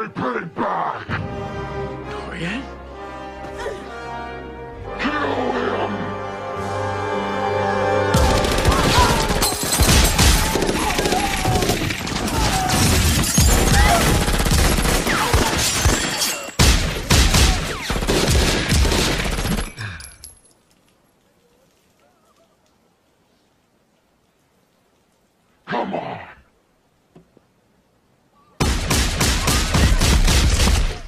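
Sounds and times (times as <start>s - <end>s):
rapid gunfire from several guns: 8.2s - 19.8s, 28.6s - 31.0s.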